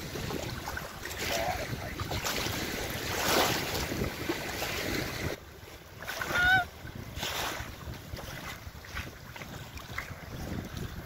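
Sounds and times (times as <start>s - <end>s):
water lapping in shallows: 0.0s - 11.0s
wind buffeting microphone: 0.0s - 11.0s
swan nasal call: 6.2s - 6.7s.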